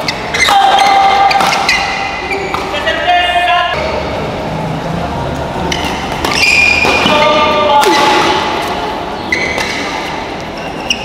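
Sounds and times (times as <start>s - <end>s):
rackets striking shuttlecock: 0.0s - 2.8s, 5.6s - 8.8s, 9.4s - 10.6s
shoe squeaks: 0.0s - 3.0s, 5.6s - 7.6s, 9.2s - 11.0s
voices: 0.0s - 11.0s.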